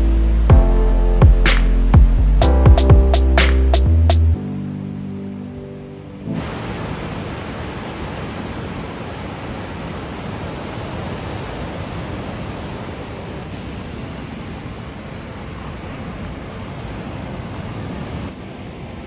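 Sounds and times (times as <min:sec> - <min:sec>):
surf breaking on rocky shore: 0:06.3 - 0:19.0.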